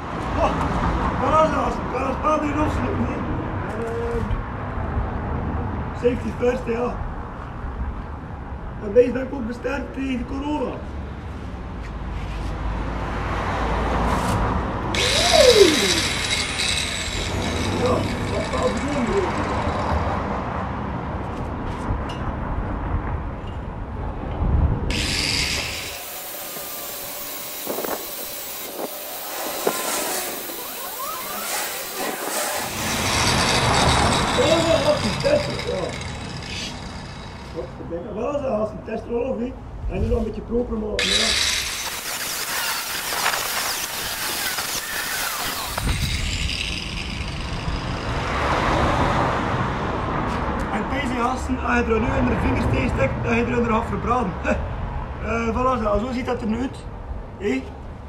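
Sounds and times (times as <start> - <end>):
angle grinder cutting metal: 14.9 - 20.1, 24.9 - 37.7, 41.0 - 48.5.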